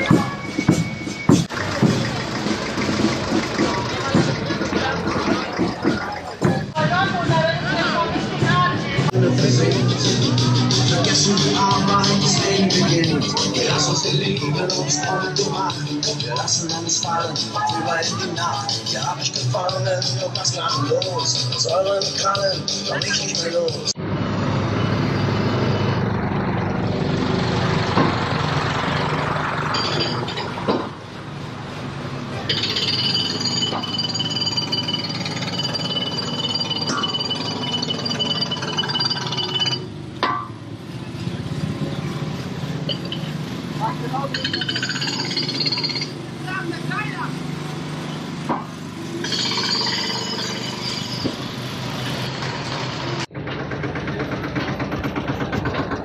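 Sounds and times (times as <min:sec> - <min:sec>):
tractor diesel engine running: 0:00.0 - 0:56.0
clink: 0:29.7 - 0:30.6, 0:32.5 - 0:40.4, 0:42.9 - 0:43.4.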